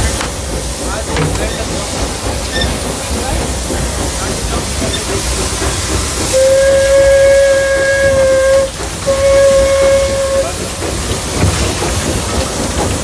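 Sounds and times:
steam hissing: 0:00.0 - 0:13.0
steam locomotive whistle: 0:06.3 - 0:10.6.

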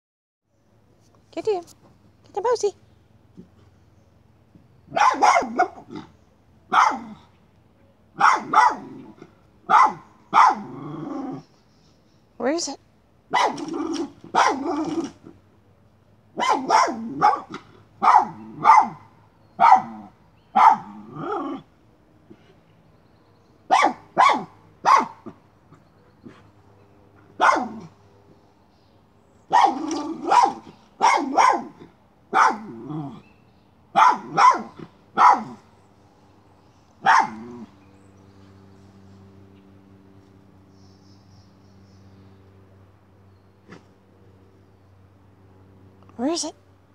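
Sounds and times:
dog barking: 0:04.9 - 0:06.1, 0:06.7 - 0:07.2, 0:08.2 - 0:09.0, 0:09.7 - 0:10.8, 0:13.3 - 0:15.0, 0:16.4 - 0:21.0, 0:23.7 - 0:25.4, 0:27.4 - 0:28.0, 0:29.5 - 0:32.8, 0:33.9 - 0:35.6, 0:37.0 - 0:37.7.

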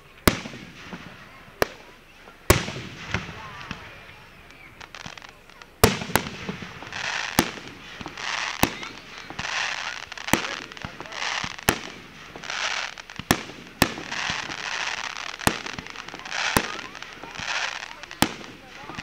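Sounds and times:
fireworks hissing: 0:00.0 - 0:19.0
firework shells bursting: 0:04.8 - 0:19.0.

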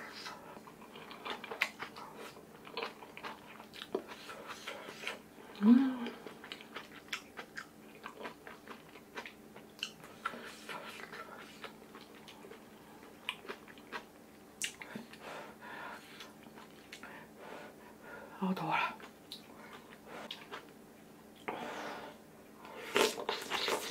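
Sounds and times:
wet chewing: 0:00.1 - 0:05.2, 0:06.0 - 0:15.2, 0:19.0 - 0:20.7.

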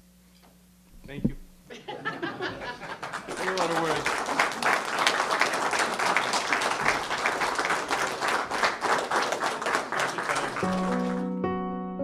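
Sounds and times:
audience applauding: 0:02.2 - 0:11.4.

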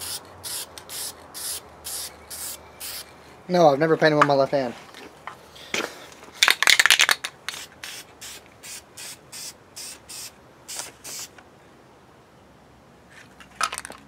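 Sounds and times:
spray paint can bursts: 0:00.0 - 0:03.1, 0:06.4 - 0:11.3.

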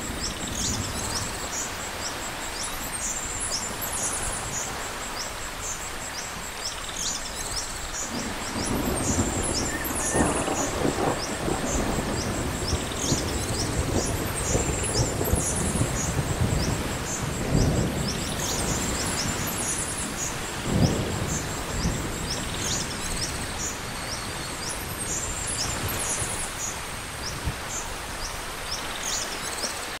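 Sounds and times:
rain hissing: 0:00.0 - 0:30.0
thunder rolling: 0:08.1 - 0:26.3.

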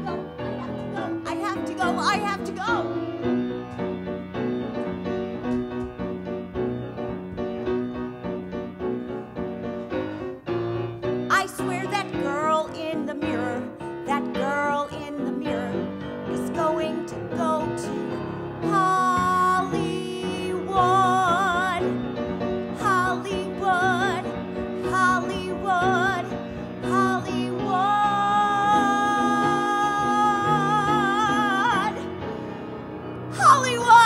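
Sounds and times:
woman singing with vibrato: 0:00.0 - 0:02.8, 0:11.3 - 0:17.9, 0:18.7 - 0:21.8, 0:22.8 - 0:32.1, 0:33.3 - 0:34.0
piano accompaniment: 0:00.0 - 0:34.0.

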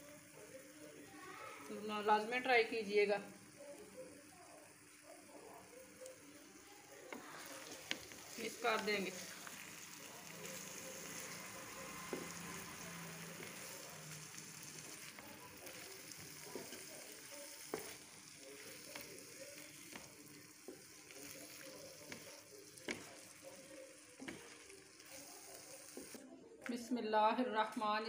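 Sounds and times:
food sizzling in oil: 0:00.0 - 0:26.2
spatula tapping and scraping pan: 0:19.8 - 0:23.6, 0:24.2 - 0:25.2.

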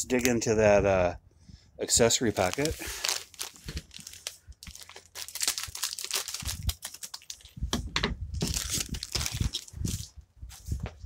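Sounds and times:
plastic packet tearing and crinkling: 0:02.1 - 0:07.6, 0:08.4 - 0:10.1.

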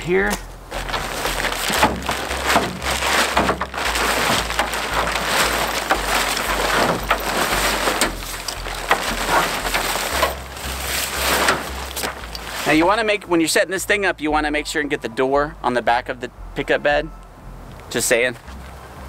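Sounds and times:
fabric and plastic crinkling: 0:00.3 - 0:13.1.

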